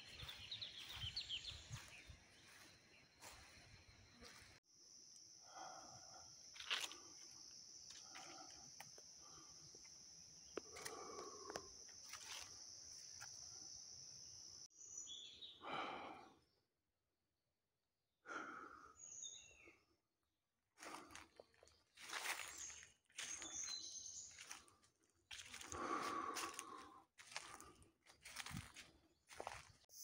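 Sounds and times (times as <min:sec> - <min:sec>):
high-pitched insect drone: 0:01.8 - 0:14.7.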